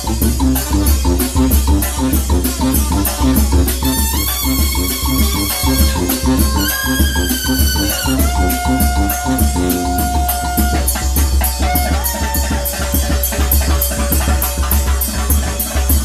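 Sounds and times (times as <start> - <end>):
bass drum: 0.0 - 16.0
brass horns holding notes: 0.0 - 16.0
snare drum beat: 0.0 - 16.0.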